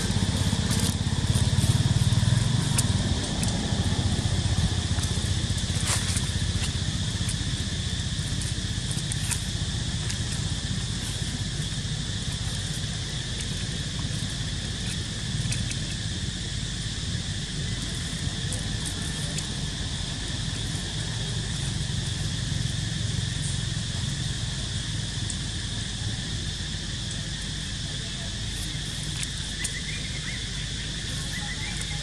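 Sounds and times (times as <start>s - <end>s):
insects buzzing: 0.0s - 32.0s.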